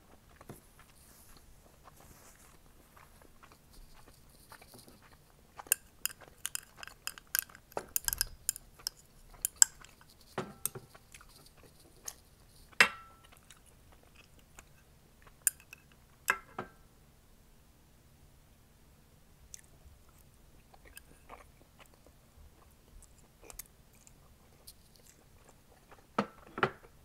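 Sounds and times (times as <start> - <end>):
metal chopsticks tapping glass: 5.8 - 10.8.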